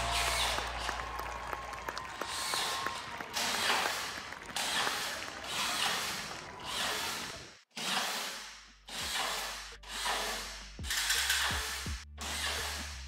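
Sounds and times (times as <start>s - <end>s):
power screwdriver driving screws: 5.5s - 12.9s.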